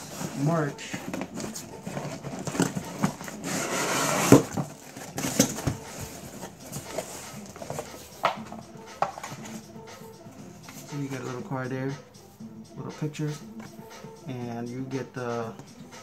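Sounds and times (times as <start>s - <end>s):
cardboard box rustling: 0.0s - 9.6s.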